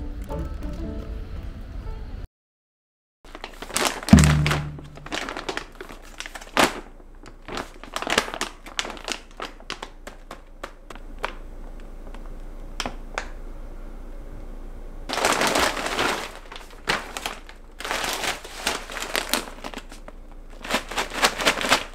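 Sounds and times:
crinkling and rustling: 0:03.3 - 0:13.3, 0:15.1 - 0:21.9
dull thump: 0:04.1 - 0:05.2.

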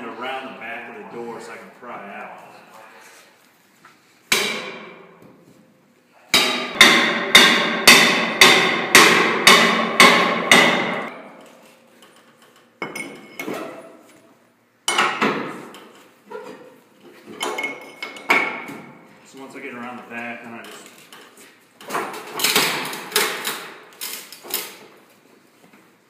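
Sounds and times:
axe striking metal bar: 0:04.3 - 0:05.1, 0:06.3 - 0:11.3.

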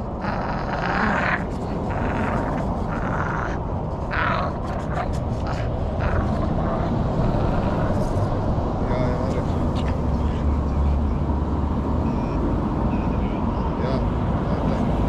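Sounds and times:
dog breathing and growling: 0:00.0 - 0:15.0
steady low rumble: 0:00.0 - 0:15.0.

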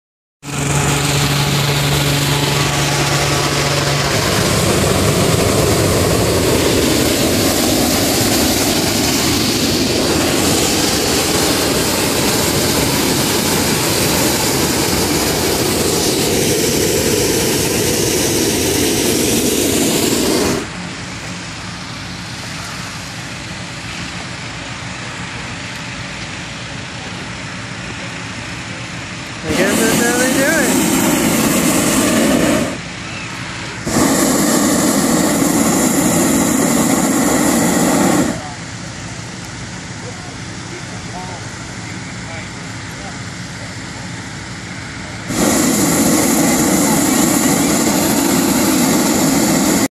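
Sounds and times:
propane burner blast: 0:00.4 - 0:49.9
steady engine hum: 0:00.4 - 0:49.9.

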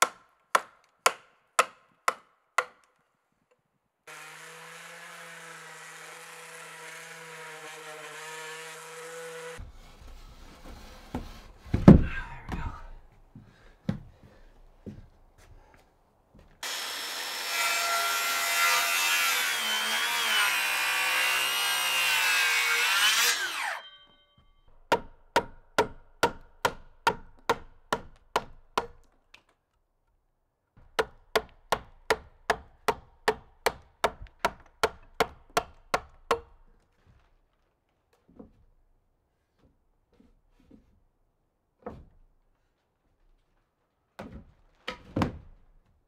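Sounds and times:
chisel striking log end grain: 0:00.0 - 0:02.9, 0:24.8 - 0:29.1, 0:30.9 - 0:36.6
power saw running: 0:16.6 - 0:18.4, 0:19.0 - 0:23.9.

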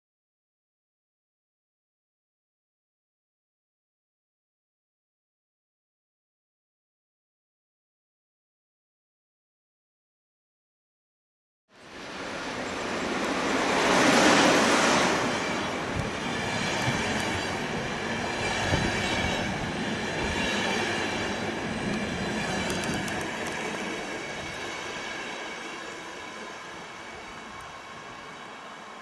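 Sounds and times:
locomotive rushing past: 0:11.8 - 0:29.0
train wheel squeal: 0:11.8 - 0:29.0
train wheel clacks: 0:15.2 - 0:24.4.

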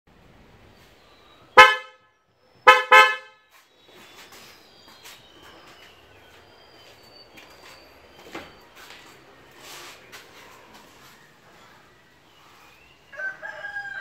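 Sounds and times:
car horn honking: 0:01.5 - 0:03.5.

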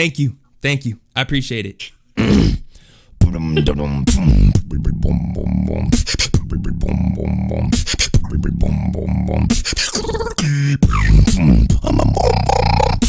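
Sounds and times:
person beatboxing into microphone: 0:03.2 - 0:13.0.

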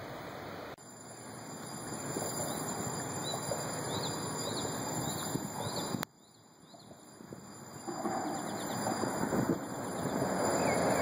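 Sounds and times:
rushing outdoor background noise: 0:00.0 - 0:11.0
small bird chirping: 0:02.4 - 0:07.0.

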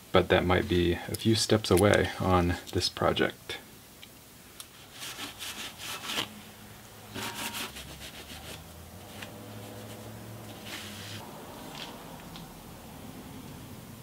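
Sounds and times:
cloth scrubbing metal: 0:07.1 - 0:11.2.

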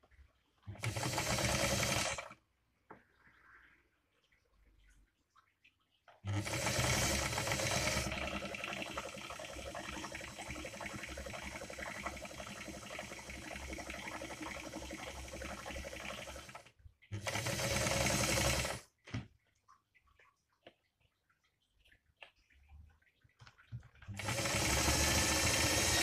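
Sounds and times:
sewing machine stitching: 0:00.7 - 0:02.4, 0:06.3 - 0:18.9, 0:24.1 - 0:26.0.

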